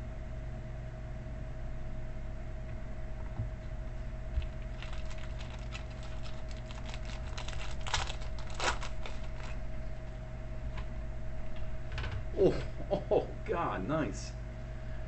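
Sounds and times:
steady electrical hum: 0.0 - 15.0
plastic wrapping rustling and crinkling: 4.4 - 9.6.

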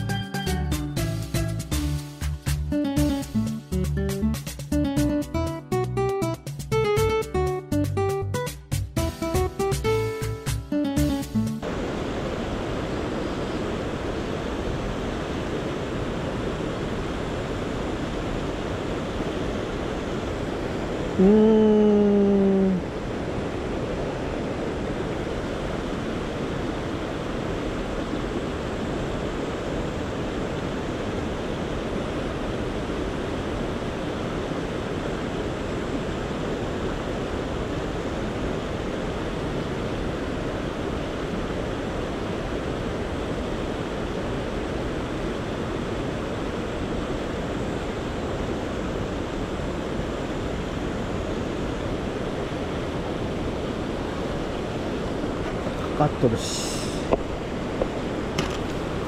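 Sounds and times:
river current rushing: 11.3 - 21.2, 22.0 - 59.0.

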